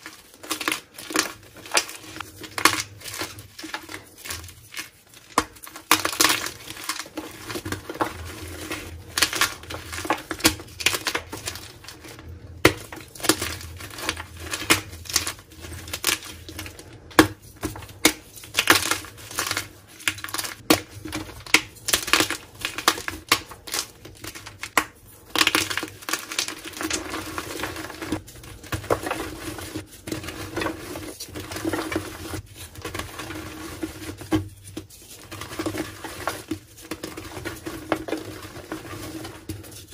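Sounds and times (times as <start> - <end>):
hands crushing chalk blocks: 0.0 - 39.9.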